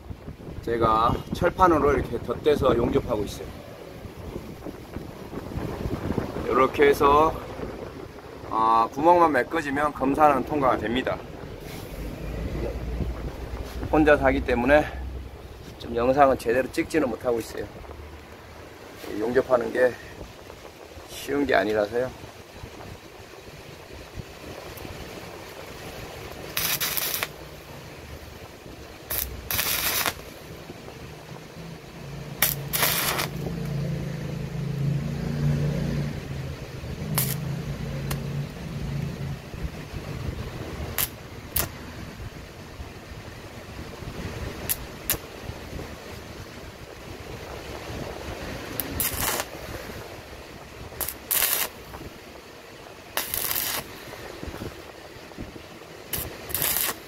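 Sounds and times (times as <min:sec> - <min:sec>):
welding arc bursts: 0:26.3 - 0:27.6, 0:29.0 - 0:30.4, 0:32.4 - 0:33.5, 0:37.0 - 0:38.2, 0:40.9 - 0:41.8, 0:44.7 - 0:45.3, 0:48.7 - 0:49.6, 0:50.9 - 0:52.0, 0:53.1 - 0:54.0, 0:56.1 - 0:57.0.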